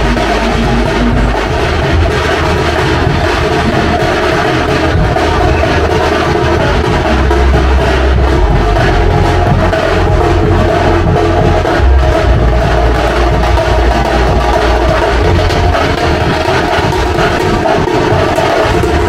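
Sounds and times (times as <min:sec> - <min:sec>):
dense drumming: 0:00.0 - 0:19.0.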